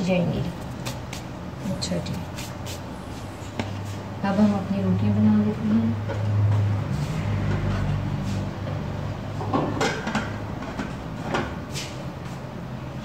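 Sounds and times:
low hum: 0:01.6 - 0:06.0.

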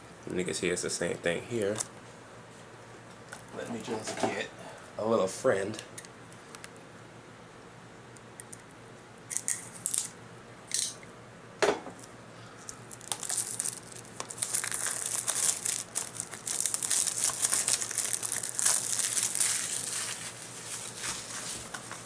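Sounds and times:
plastic wrap crinkling: 0:12.7 - 0:22.0
knife scraping shrink wrap: 0:12.8 - 0:21.1.

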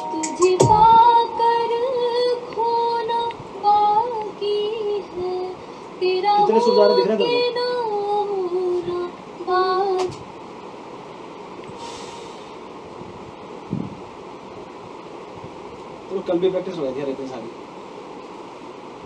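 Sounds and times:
woman singing slow melody: 0:00.0 - 0:10.3.

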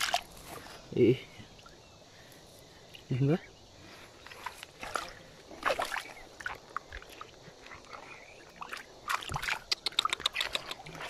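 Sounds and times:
water splashing in stream: 0:00.0 - 0:00.5, 0:04.3 - 0:11.0.

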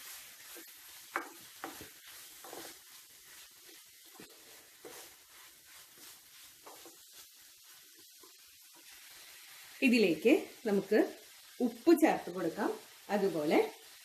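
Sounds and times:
spatula scraping pan: 0:00.0 - 0:09.5
faint sizzle: 0:00.0 - 0:14.0.

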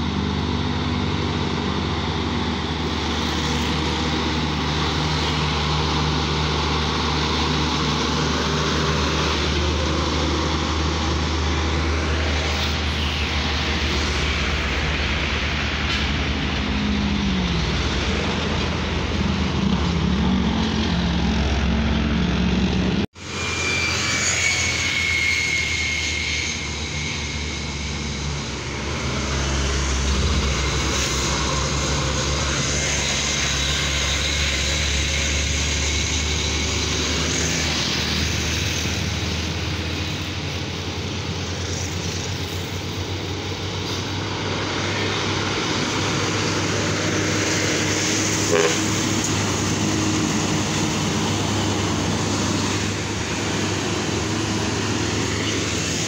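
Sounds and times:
diesel trucks droning uphill: 0:00.0 - 0:56.0.

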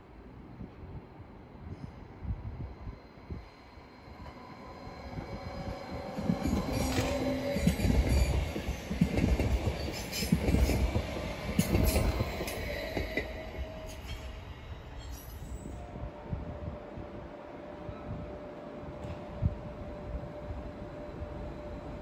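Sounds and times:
train wheels rumbling and clacking: 0:04.2 - 0:15.8.

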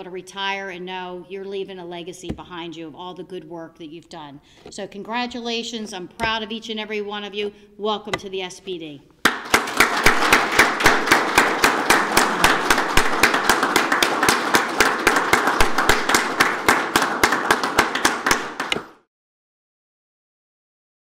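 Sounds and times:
crowd clapping: 0:09.2 - 0:19.1
sharp close hand claps: 0:09.2 - 0:19.1.

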